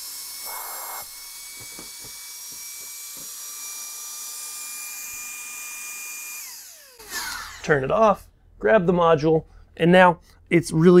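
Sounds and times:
suction tool whining: 0.0 - 7.7.

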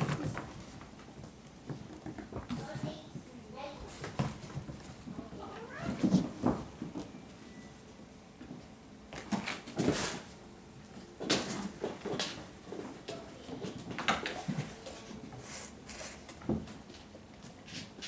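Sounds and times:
kittens scampering on hard floor: 0.0 - 7.2, 11.2 - 18.0.

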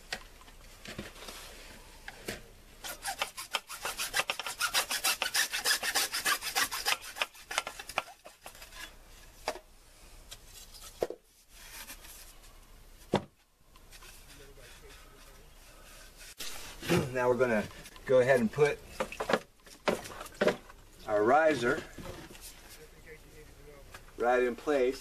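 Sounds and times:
hand saw cutting plastic pipe: 2.8 - 8.9.

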